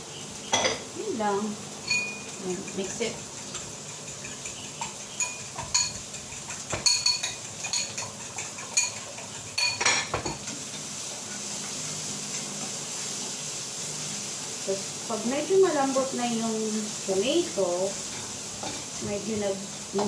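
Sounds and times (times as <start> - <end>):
spoon clinking in ceramic bowl: 1.9 - 2.8, 3.5 - 6.1, 6.7 - 9.0, 9.6 - 10.1.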